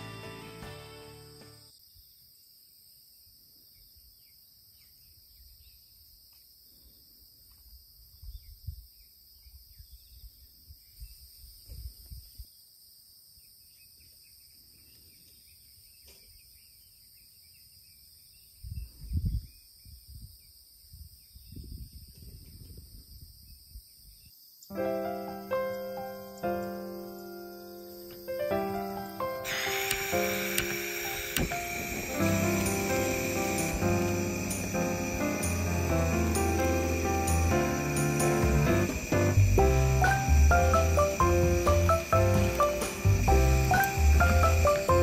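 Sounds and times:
insects chorus: 0.0s - 45.0s
wind gusts on microphone: 18.6s - 24.3s.

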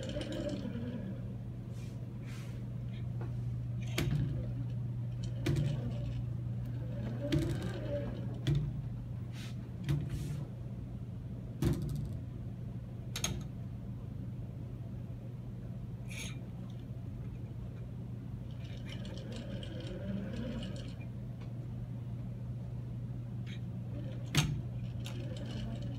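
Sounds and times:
robot arm humming: 0.0s - 1.5s, 2.9s - 8.9s, 18.5s - 21.2s, 23.4s - 25.9s.

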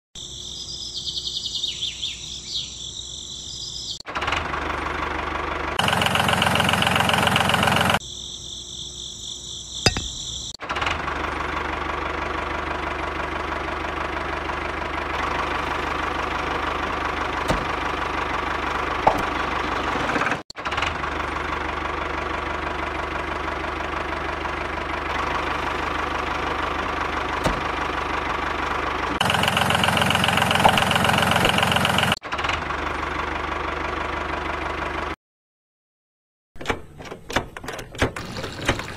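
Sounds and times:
cricket-like chirring: 0.2s - 4.0s, 8.0s - 10.6s
small engine idling: 4.0s - 8.0s, 9.9s - 35.2s.

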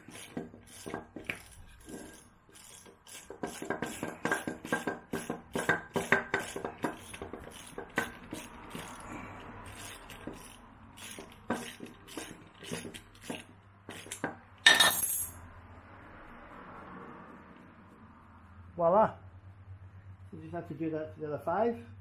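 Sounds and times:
hand tools clicking on metal: 0.0s - 15.1s.

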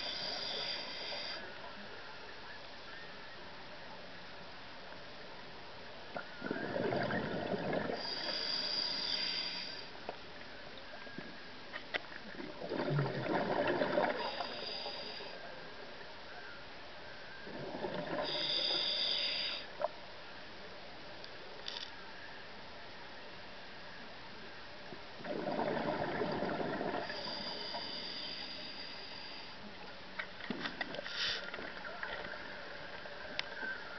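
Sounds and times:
diver breathing through regulator: 0.0s - 1.4s, 7.7s - 9.9s, 14.0s - 15.4s, 18.2s - 19.7s, 26.9s - 29.6s
bubbling: 6.2s - 8.2s, 12.2s - 14.6s, 17.4s - 18.4s, 25.2s - 27.3s.

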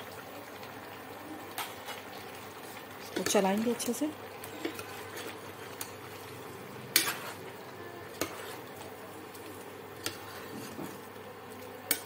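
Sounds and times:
metal ladle scraping a pot: 6.9s - 7.5s, 8.1s - 8.7s.

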